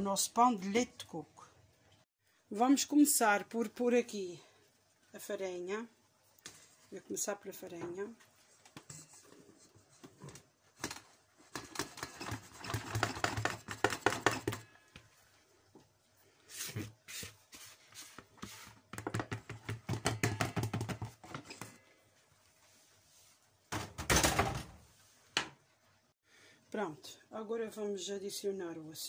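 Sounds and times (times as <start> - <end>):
rapid tapping and rustling: 9.9 - 14.7.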